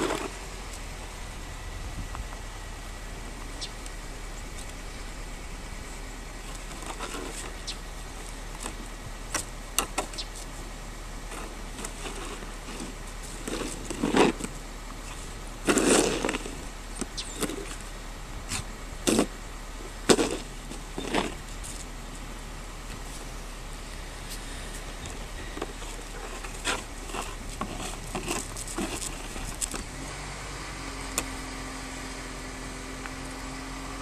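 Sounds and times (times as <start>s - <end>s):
shovel scraping across snow: 0.0s - 0.4s, 6.4s - 7.7s, 11.3s - 17.9s, 18.5s - 19.4s, 20.0s - 21.9s, 24.2s - 30.0s.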